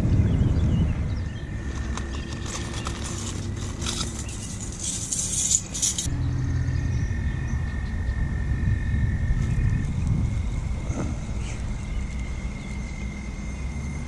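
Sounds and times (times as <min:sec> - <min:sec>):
rummaging through soft bag: 0:01.6 - 0:06.1
tackle and packaging rattling: 0:01.6 - 0:06.1.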